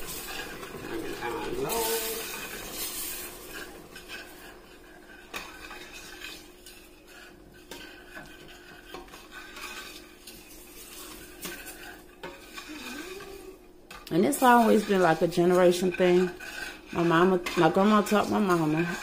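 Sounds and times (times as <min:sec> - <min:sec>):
utensil stirring in metal pot: 0:00.0 - 0:19.0.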